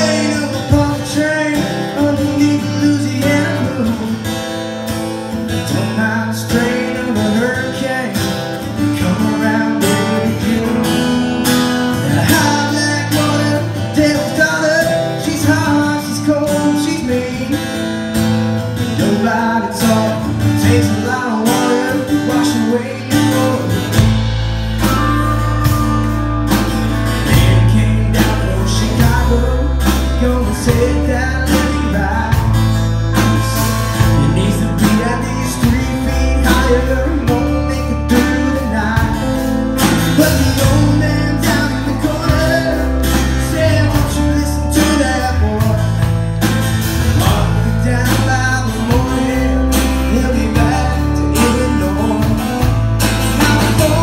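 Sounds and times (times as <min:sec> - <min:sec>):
bass: 0:00.0 - 0:54.0
drums keeping steady beat: 0:00.0 - 0:54.0
electric guitars: 0:00.0 - 0:54.0
strummed acoustic guitar: 0:00.0 - 0:54.0.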